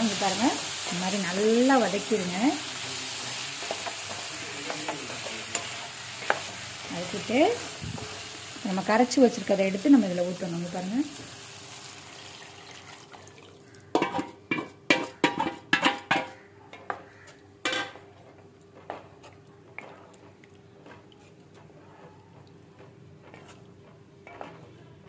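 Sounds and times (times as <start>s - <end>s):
light taps stirring gravy: 3.6s - 6.5s, 18.2s - 24.7s
utensils knocking metal pan: 13.9s - 16.4s.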